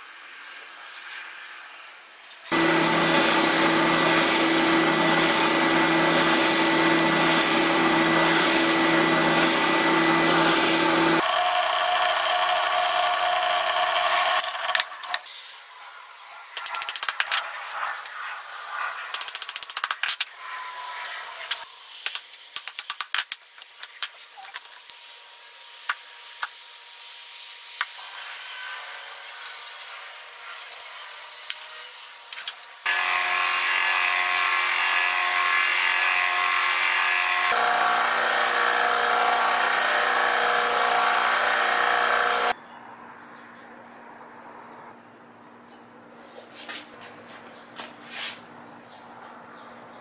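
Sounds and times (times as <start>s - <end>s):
electric drill running: 2.5s - 15.2s, 32.8s - 42.6s.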